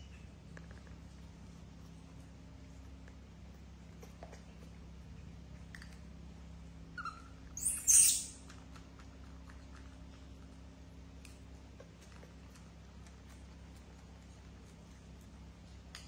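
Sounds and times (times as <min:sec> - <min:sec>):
steady low hum: 0:00.0 - 0:16.0
monkey shrill squeal: 0:07.0 - 0:08.4
monkey squeaking: 0:07.0 - 0:08.4.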